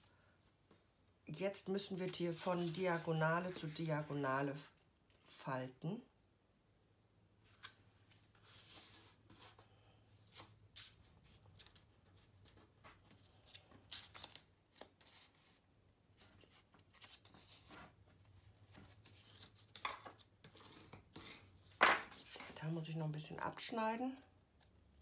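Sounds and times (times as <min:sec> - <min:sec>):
paper rustling and crinkling: 0:07.5 - 0:22.6.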